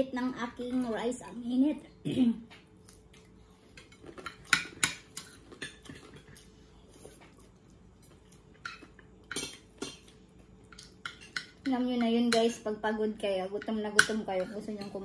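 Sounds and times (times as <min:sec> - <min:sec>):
cutlery clinking on plates: 0:08.6 - 0:12.5.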